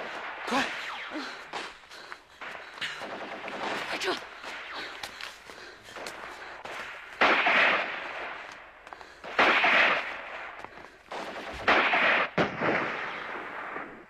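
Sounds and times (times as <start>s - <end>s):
loud gunfire bursts: 2.4s - 5.0s, 6.0s - 8.5s, 9.2s - 14.0s.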